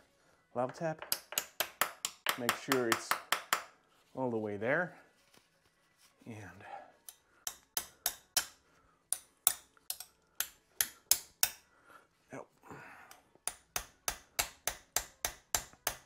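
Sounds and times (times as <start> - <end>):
hammer tapping metal: 1.0 - 3.7, 7.0 - 11.6, 13.4 - 16.0.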